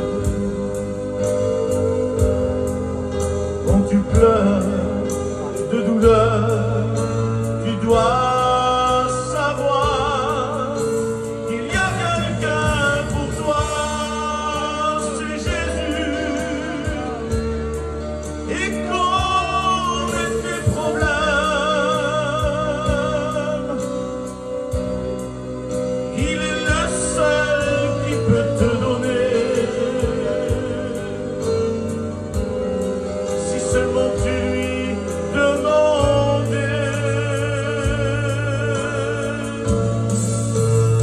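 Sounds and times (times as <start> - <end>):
sustained backing chords: 0.0 - 41.0
person singing a hymn: 3.7 - 17.5, 18.5 - 23.9, 26.1 - 31.5, 33.3 - 41.0.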